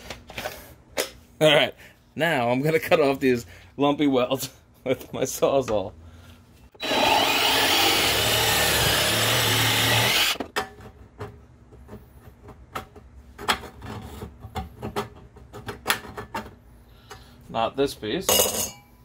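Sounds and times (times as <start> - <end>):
reciprocating saw cutting metal: 6.8 - 10.4.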